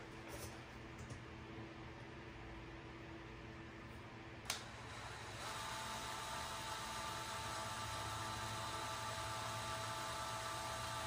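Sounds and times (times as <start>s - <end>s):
cordless drill whining: 4.5s - 11.0s.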